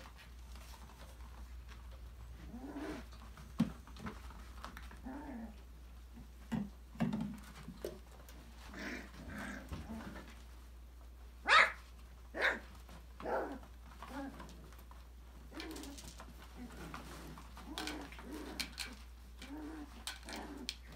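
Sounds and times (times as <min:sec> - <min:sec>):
puppies growling and whining: 0:02.2 - 0:03.3, 0:04.8 - 0:05.7, 0:08.5 - 0:10.4, 0:13.2 - 0:20.9
puppy barking: 0:11.4 - 0:12.6.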